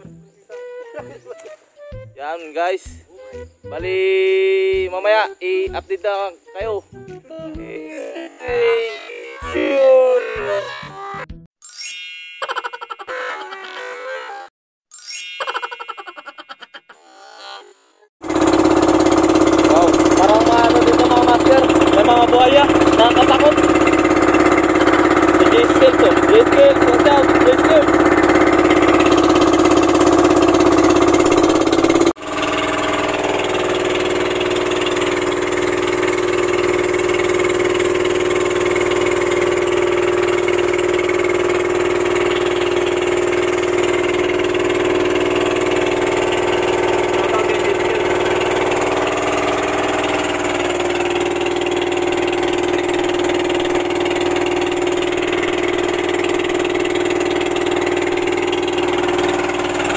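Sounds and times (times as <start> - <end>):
boat engine droning: 18.2 - 59.9.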